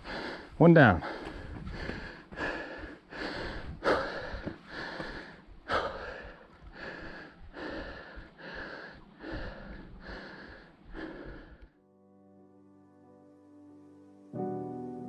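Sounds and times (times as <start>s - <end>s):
person panting hard: 0.0s - 11.8s.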